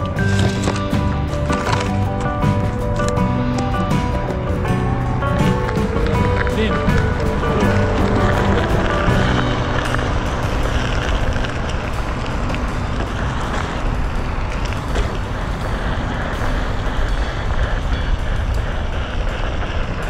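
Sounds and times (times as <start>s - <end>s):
background music: 0.0s - 20.0s
wheel rolling over rough asphalt: 0.0s - 20.0s.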